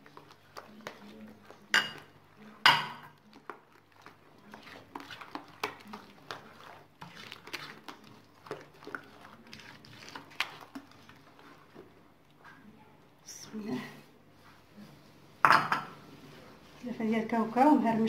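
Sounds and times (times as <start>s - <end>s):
hand squelching through batter: 0.0s - 12.7s.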